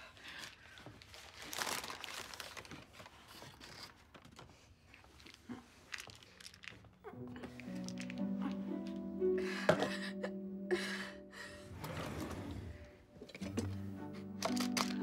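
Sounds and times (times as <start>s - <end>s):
paper crinkling: 0.2s - 8.6s
plastic pill bottle clicks: 14.4s - 15.0s.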